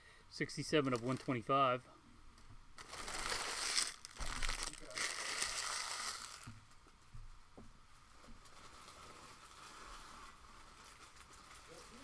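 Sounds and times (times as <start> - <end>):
foil wrappers crinkling: 0.6 - 1.5, 2.8 - 6.5, 8.4 - 12.0.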